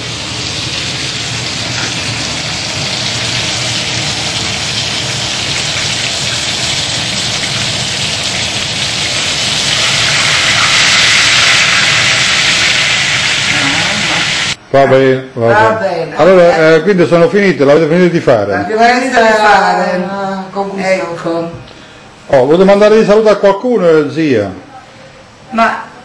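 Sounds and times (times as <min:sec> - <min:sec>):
food sizzling in oil: 0:00.0 - 0:14.6.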